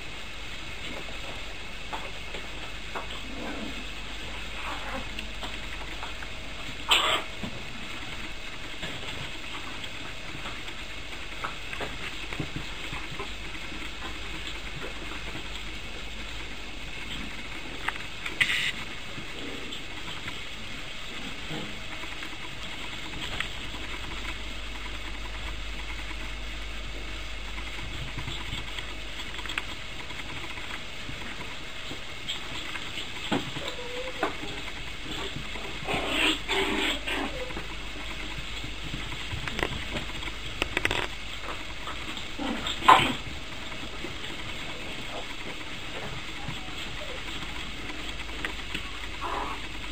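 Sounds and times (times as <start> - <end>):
recording hiss: 0.0 - 49.9
puppies playing: 0.6 - 49.9.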